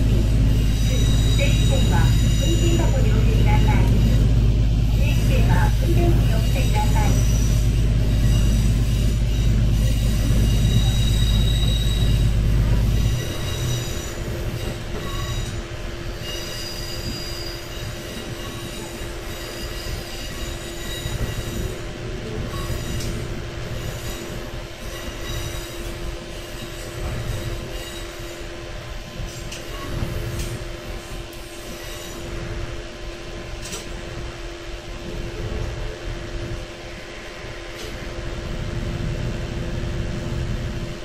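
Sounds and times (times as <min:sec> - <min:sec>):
high wheel squeal: 0:00.0 - 0:04.4, 0:05.0 - 0:28.5, 0:29.5 - 0:30.3, 0:31.4 - 0:32.5
diesel railcar engine droning: 0:00.0 - 0:41.0
wheel and rail running noise: 0:00.0 - 0:41.0.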